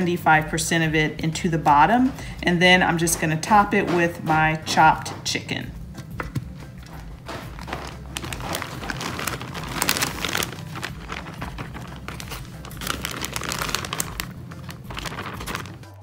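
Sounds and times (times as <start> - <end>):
plastic bag crinkling: 6.9 - 16.0.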